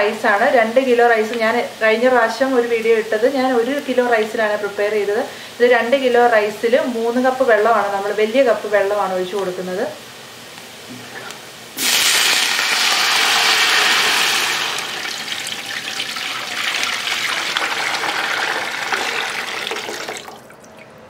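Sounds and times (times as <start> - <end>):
water pouring into a pot: 11.8 - 21.0.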